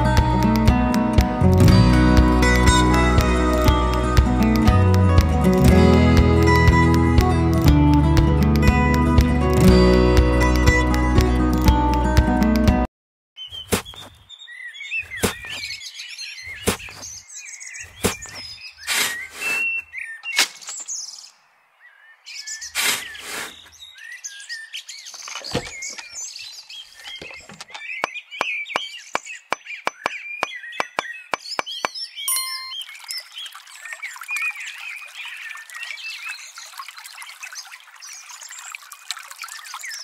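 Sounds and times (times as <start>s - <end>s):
small birds chirping: 13.4s - 40.0s
sharp knocks and clicks: 27.1s - 32.0s.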